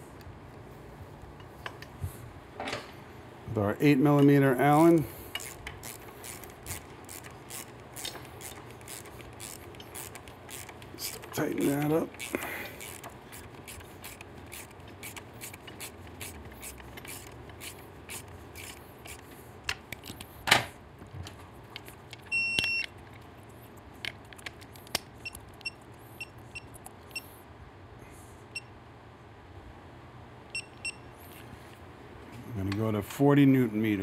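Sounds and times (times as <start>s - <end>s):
ratchet clicking: 4.2s - 19.3s
electronic torque wrench beeps: 22.3s - 22.9s, 30.6s - 31.0s.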